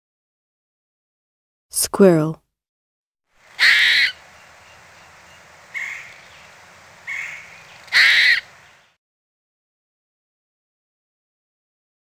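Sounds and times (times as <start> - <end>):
background hiss: 3.4 - 8.9
squirrel calling: 3.4 - 9.0.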